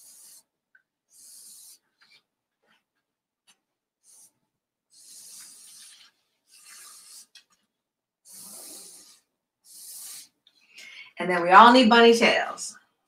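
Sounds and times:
marker scratching on canvas: 0.0 - 2.9, 3.5 - 10.6.

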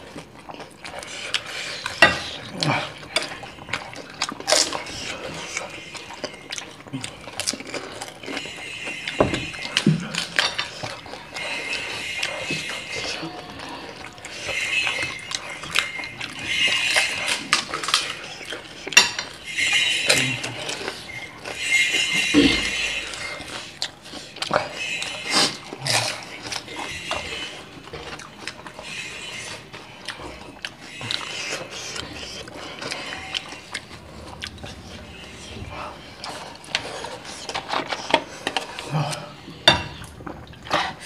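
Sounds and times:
slurping: 0.0 - 41.0
ceramic bowls clinking: 1.4 - 7.5, 8.1 - 23.8.

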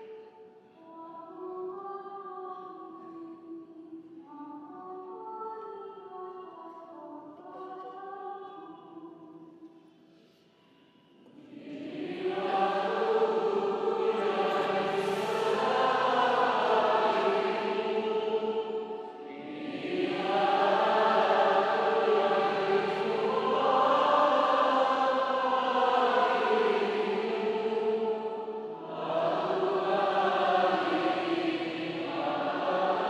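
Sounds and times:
woman singing: 0.0 - 9.6.

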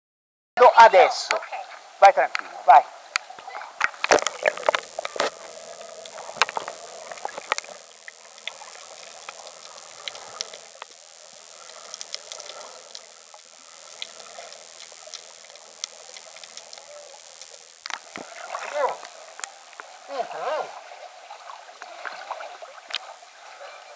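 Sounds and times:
muffled underwater hiss: 1.3 - 23.9
underwater clicks and crackles: 3.1 - 20.1, 21.5 - 23.4
thin high tone: 4.0 - 20.9.

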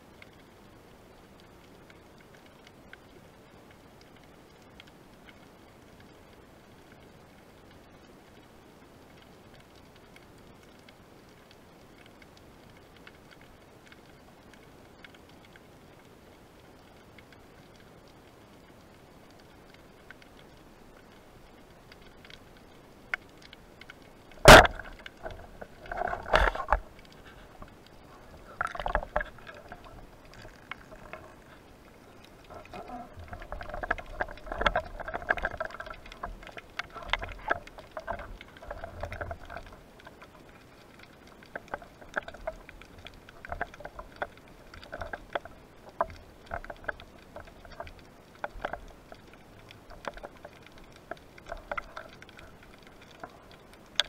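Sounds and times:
speargun firing underwater: 24.4 - 25.0.

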